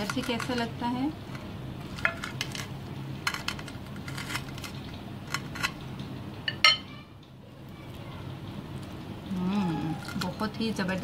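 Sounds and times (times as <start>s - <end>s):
knife scraping crisp crust: 1.3s - 5.8s.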